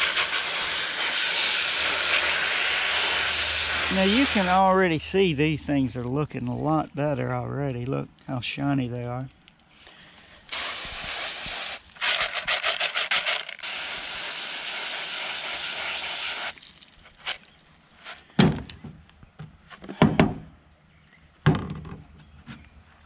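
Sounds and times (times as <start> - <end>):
hose spraying water: 0.0 - 5.0, 10.5 - 17.5.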